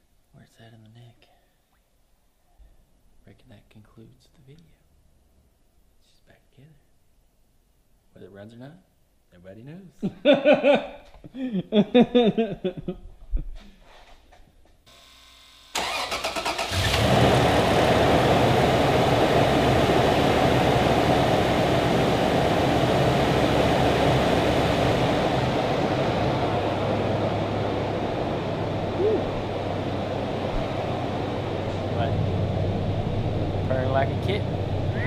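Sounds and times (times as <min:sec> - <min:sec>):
car engine idling: 0:15.8 - 0:35.0.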